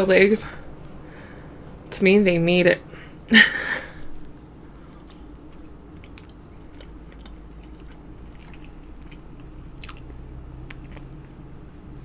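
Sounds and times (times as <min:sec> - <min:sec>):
chewing egg: 0:04.8 - 0:11.4
wet mouth clicks: 0:09.8 - 0:10.8.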